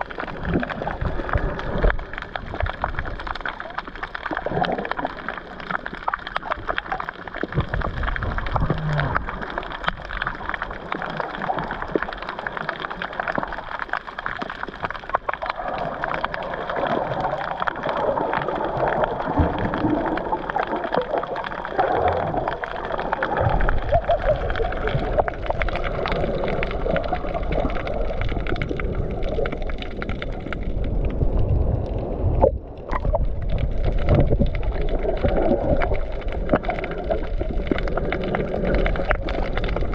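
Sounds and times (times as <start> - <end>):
muffled water sloshing and gurgling: 0.0 - 39.9
small crackles: 0.0 - 39.9
low rumble: 24.9 - 39.9.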